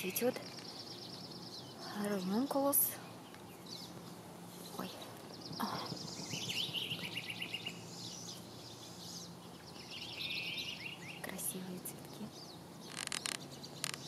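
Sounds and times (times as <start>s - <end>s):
faint steady hum: 0.0s - 14.0s
small animal trilling calls: 12.8s - 14.0s.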